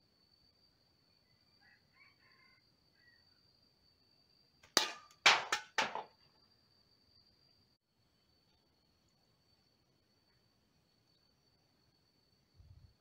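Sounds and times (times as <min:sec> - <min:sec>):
can clanking as it tumbles: 0:04.7 - 0:06.1.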